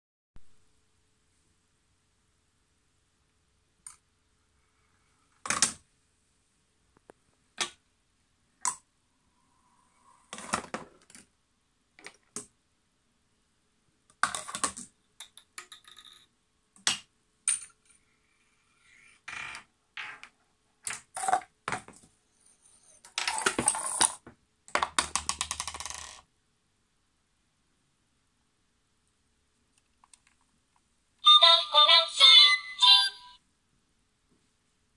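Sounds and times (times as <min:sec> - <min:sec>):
marbles and wooden parts clacking: 0:14.1 - 0:18.0, 0:18.8 - 0:22.1, 0:22.7 - 0:26.3.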